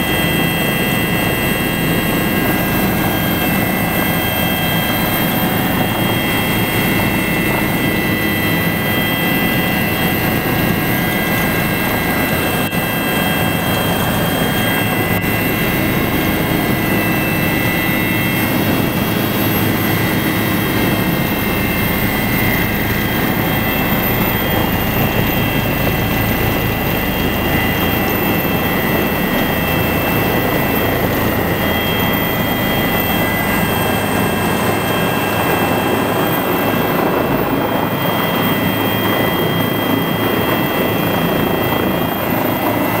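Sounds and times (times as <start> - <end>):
helicopter turbine and rotor: 0.0 - 43.0.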